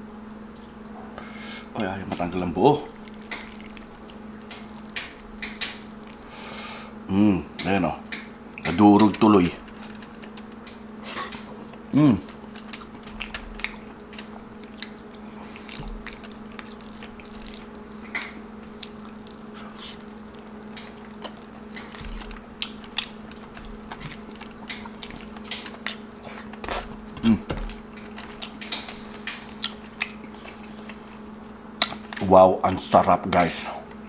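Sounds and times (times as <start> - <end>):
steady low hum: 0.0 - 34.0
chewing: 2.8 - 6.4, 8.1 - 32.3
squish of saucy meat: 2.9 - 6.3, 12.2 - 27.0
person humming mm: 11.9 - 12.4, 26.7 - 27.6.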